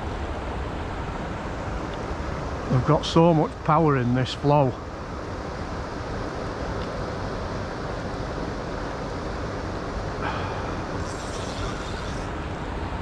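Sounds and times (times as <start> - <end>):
fast-flowing river rushing: 0.0 - 13.0
brief high hiss: 10.2 - 12.3.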